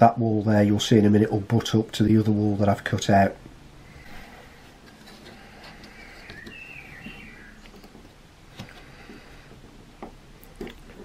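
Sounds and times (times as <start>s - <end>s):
bird chirping: 5.8s - 8.1s.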